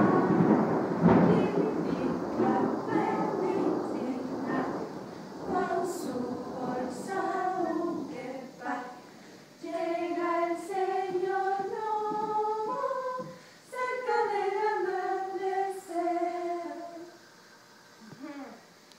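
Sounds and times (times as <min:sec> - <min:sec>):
women singing in unison: 0:00.0 - 0:17.3.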